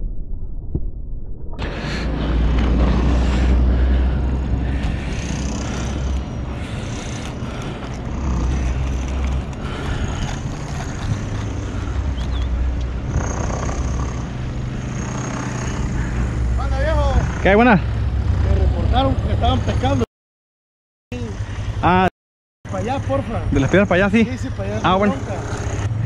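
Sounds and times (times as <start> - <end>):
wind buffeting microphone: 1.6 - 14.9
atv engine hum: 1.6 - 20.0, 21.1 - 22.1, 22.7 - 26.0.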